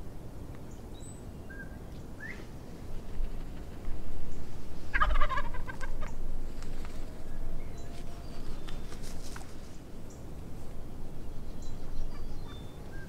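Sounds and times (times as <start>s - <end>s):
turkey gobbling: 4.9s - 6.2s.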